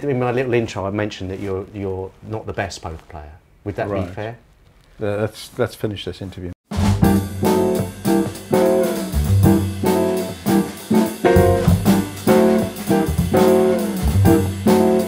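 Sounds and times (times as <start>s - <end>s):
guitar and bass instrumental: 6.9s - 15.0s.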